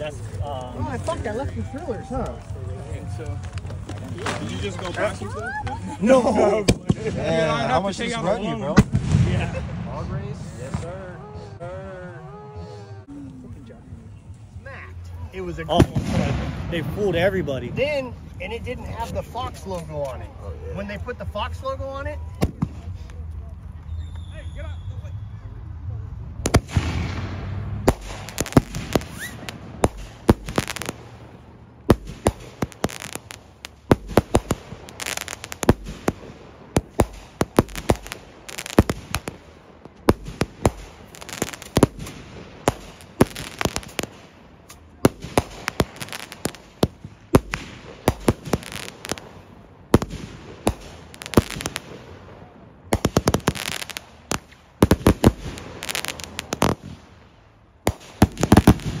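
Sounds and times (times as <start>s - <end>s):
firework pops and crackling: 0.1s - 7.3s, 15.6s - 16.9s, 22.4s - 24.3s, 26.4s - 52.3s, 52.9s - 57.2s, 57.8s - 59.0s.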